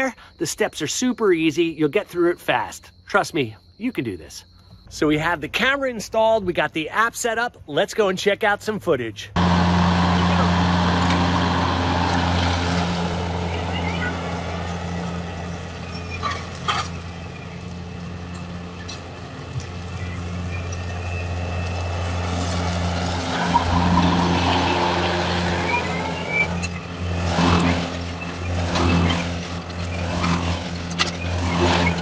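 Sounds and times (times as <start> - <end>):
riding mower running: 9.4 - 32.0.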